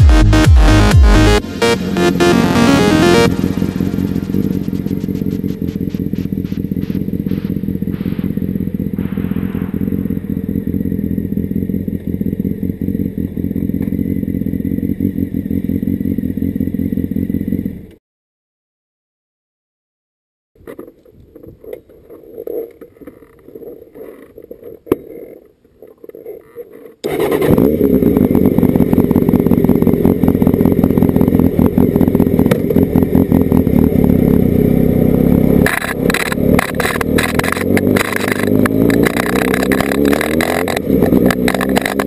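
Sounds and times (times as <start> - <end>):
motorcycle engine revving: 0.0 - 18.0, 27.0 - 42.0.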